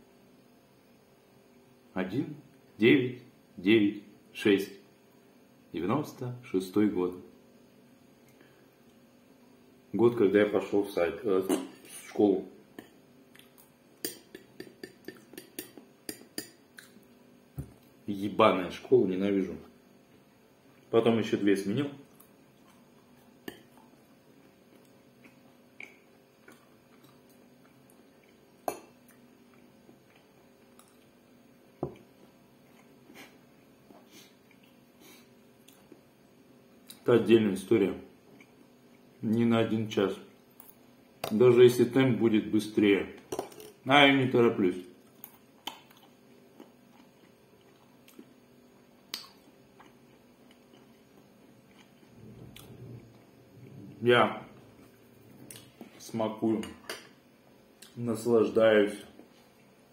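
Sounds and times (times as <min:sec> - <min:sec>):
mouth clicks and smacks: 0:12.8 - 0:17.0, 0:24.8 - 0:27.3
quiet chewing: 0:12.8 - 0:17.1, 0:22.0 - 0:31.2, 0:31.9 - 0:36.1, 0:38.3 - 0:39.2, 0:44.9 - 0:54.0, 0:54.6 - 0:56.0.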